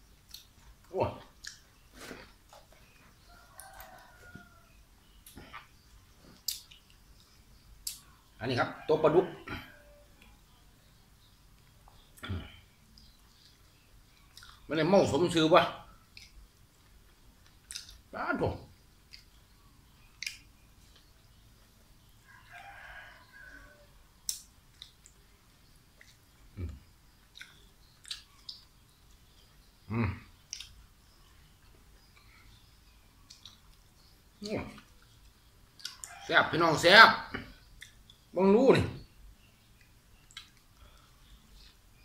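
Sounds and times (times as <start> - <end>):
sharp clicks of eating: 0.2 - 3.0, 5.1 - 8.2, 11.5 - 14.7, 16.0 - 18.1, 18.8 - 21.8, 24.2 - 36.2, 37.4 - 38.3, 39.7 - 42.0
rooster crowing: 3.3 - 4.9, 8.5 - 10.2, 22.2 - 24.0.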